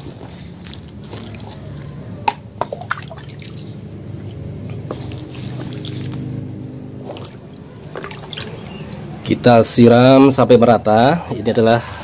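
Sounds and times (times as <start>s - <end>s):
liquid trickling into soil: 0.0s - 9.1s.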